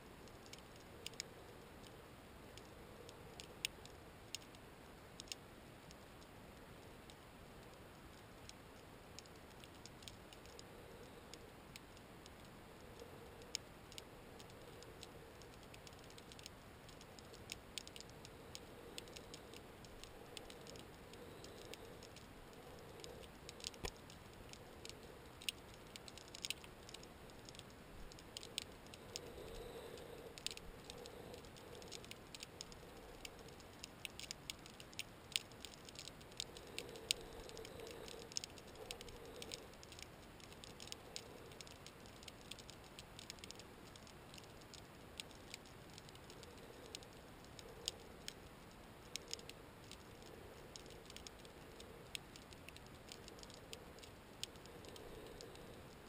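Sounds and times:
faint hiss: 0.0s - 56.0s
underwater clicks and crackles: 0.2s - 2.0s, 2.6s - 56.0s.

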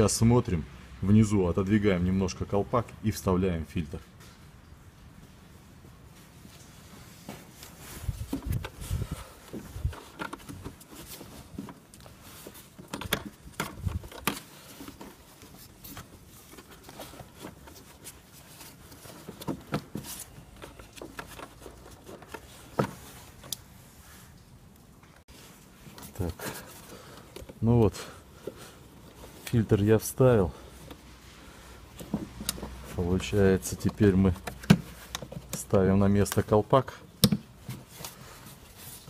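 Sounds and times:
plastic knocks and scrapes: 8.0s - 23.6s, 31.9s - 33.0s, 33.7s - 35.7s.

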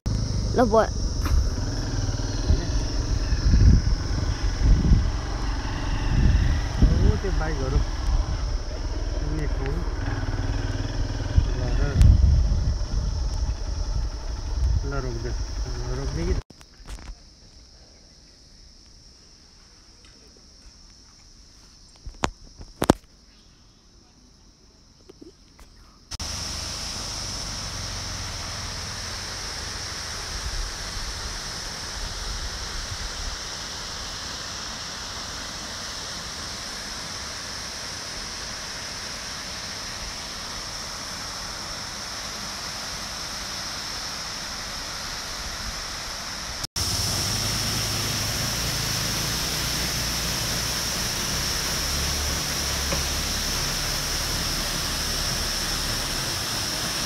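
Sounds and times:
high insect drone: 0.1s - 57.0s
waterfall rushing: 26.2s - 57.0s.

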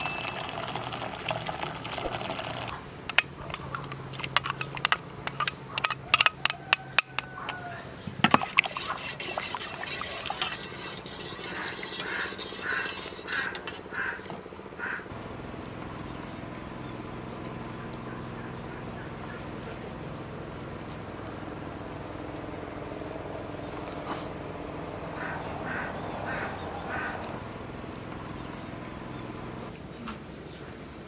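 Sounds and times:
low background hum: 0.0s - 31.0s
metal spoon clinking on pot: 3.1s - 7.3s.

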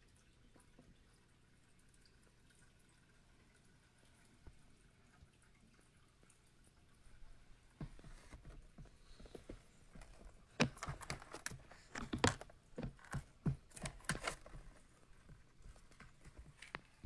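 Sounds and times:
lizard claws clicking and scratching: 10.0s - 17.0s.

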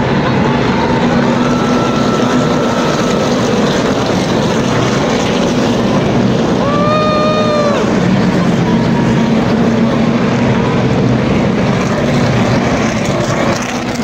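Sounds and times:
race cars passing at full throttle: 0.0s - 14.0s
high-pitched tone: 0.3s - 4.1s.

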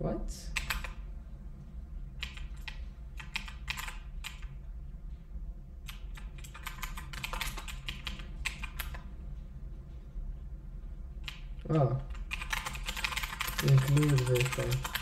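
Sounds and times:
keyboard typing: 0.6s - 1.0s, 2.2s - 4.6s, 5.8s - 9.1s, 11.2s - 15.0s.

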